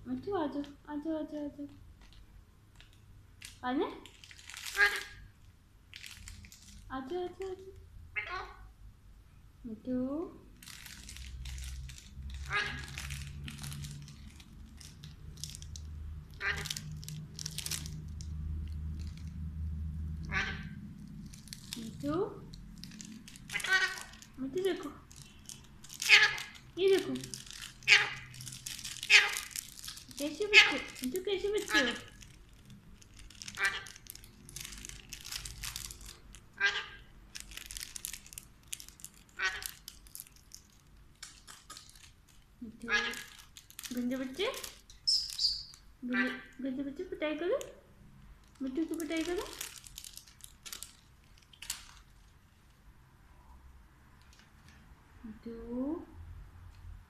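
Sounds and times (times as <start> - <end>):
plastic wrapper crinkling: 1.6 - 7.9, 10.5 - 45.9, 48.3 - 52.8, 54.2 - 54.8
parakeet calls: 4.7 - 5.2, 12.4 - 13.0, 16.4 - 16.9, 20.2 - 20.9, 23.5 - 24.2, 26.0 - 26.6, 27.8 - 28.3, 29.0 - 29.5, 30.4 - 32.2, 33.5 - 34.0, 36.6 - 37.1, 42.8 - 43.4, 45.0 - 46.5
parakeet call: 12.4 - 13.0, 20.3 - 20.8, 26.0 - 26.6, 29.1 - 29.5, 45.1 - 46.5.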